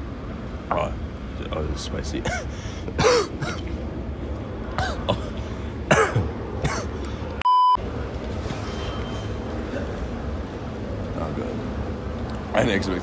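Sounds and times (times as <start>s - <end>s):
man coughing: 2.2s - 3.7s, 4.7s - 7.0s
electronic bleep: 7.4s - 7.8s.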